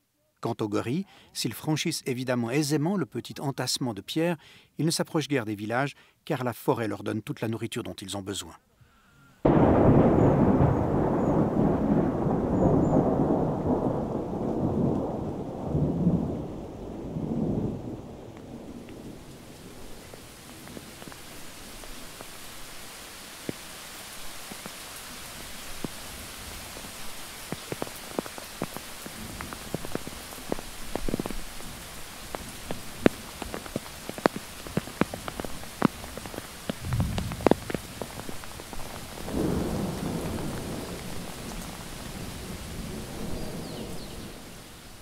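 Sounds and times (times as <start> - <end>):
rain hissing: 9.5 - 45.0
heavy drops dripping: 27.4 - 42.0
low rumbles: 36.7 - 40.7.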